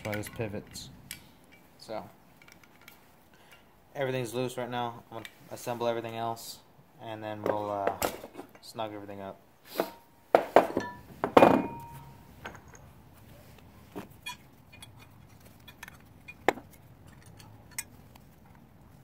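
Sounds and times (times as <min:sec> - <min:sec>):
metal hardware clanking: 0:00.0 - 0:00.9.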